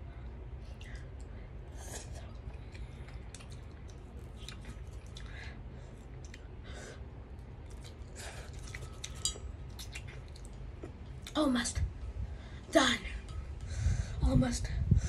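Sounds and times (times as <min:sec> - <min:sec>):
child chewing and slurping noodles: 0:00.2 - 0:11.4.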